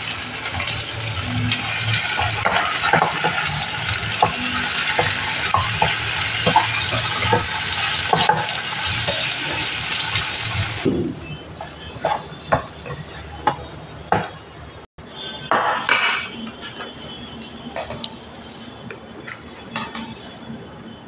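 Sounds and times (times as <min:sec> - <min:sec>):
pan knocking on ceramic bowls: 0:04.2 - 0:09.6.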